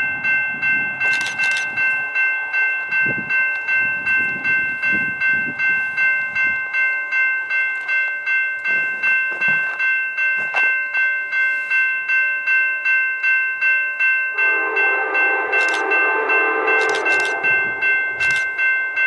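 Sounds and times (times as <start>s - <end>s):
crossing bell ringing: 0.0s - 19.0s
locomotive horn blowing: 14.3s - 18.4s.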